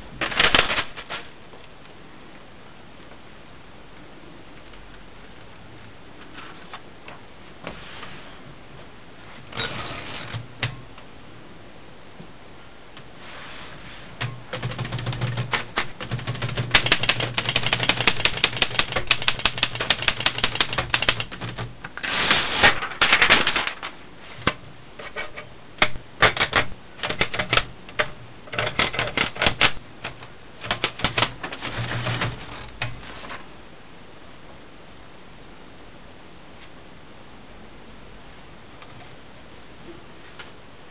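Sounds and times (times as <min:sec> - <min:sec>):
manual typewriter typing: 0:00.2 - 0:01.3, 0:14.2 - 0:33.1.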